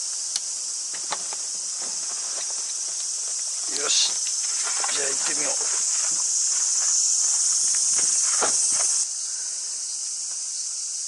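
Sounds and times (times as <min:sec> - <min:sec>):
cicadas droning: 0:00.0 - 0:11.0
dull thump: 0:04.0 - 0:09.0.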